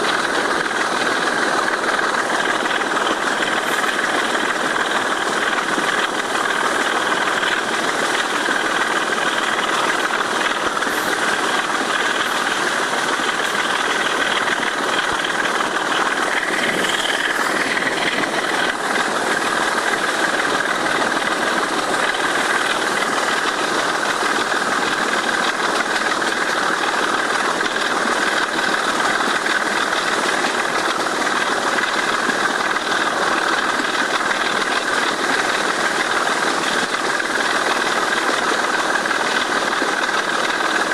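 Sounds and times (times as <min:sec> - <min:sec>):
diesel locomotive engine at full power: 0:00.0 - 0:40.9.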